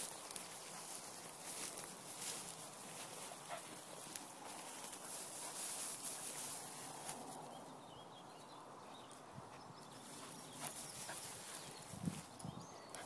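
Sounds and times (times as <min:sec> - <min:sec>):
rustling through long grass: 0:00.0 - 0:07.7, 0:09.9 - 0:12.4.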